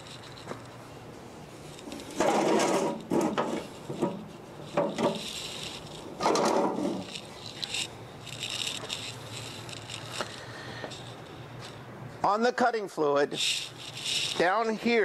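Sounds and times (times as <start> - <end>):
hands scraping sheet metal: 1.9 - 7.8.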